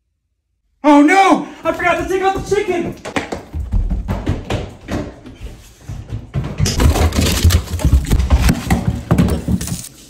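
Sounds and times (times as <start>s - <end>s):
hurried footsteps: 1.1s - 9.8s
frozen packages clattering and crinkling: 6.7s - 10.0s.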